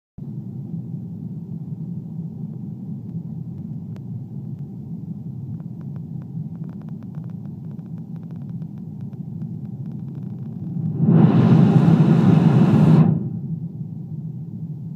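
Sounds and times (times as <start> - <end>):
airliner cabin rumble: 0.2 - 14.9.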